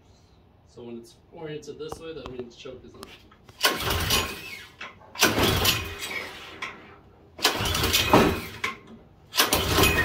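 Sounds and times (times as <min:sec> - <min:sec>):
engine cranking on pull start: 0:03.5 - 0:06.8, 0:07.4 - 0:10.0.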